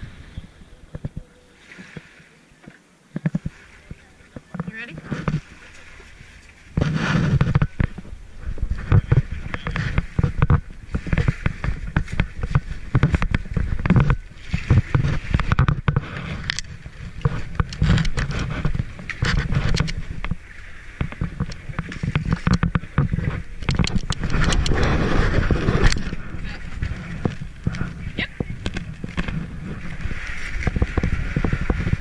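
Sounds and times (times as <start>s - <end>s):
gravel crunching under hull: 3.1s - 32.0s
hull scraping off gravel: 23.1s - 32.0s.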